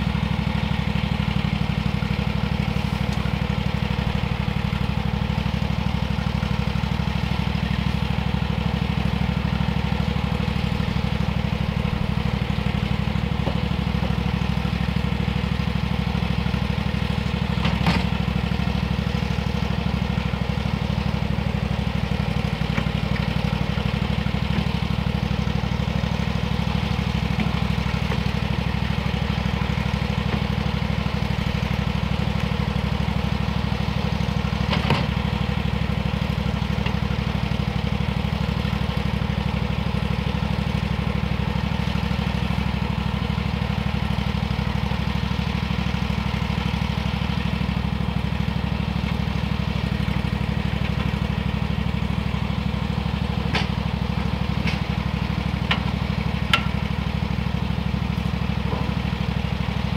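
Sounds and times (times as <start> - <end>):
engine running steadily: 0.0 - 59.9.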